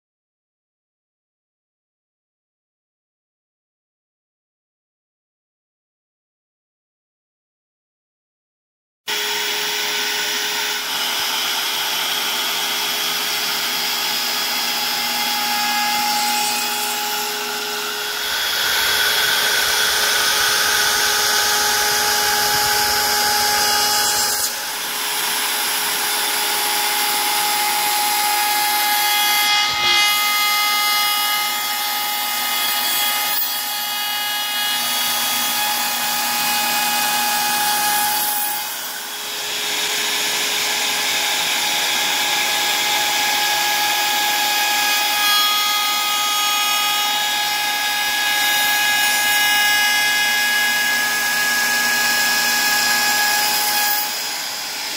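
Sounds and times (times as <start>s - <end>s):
wood router cutting wood: 9.1s - 54.9s.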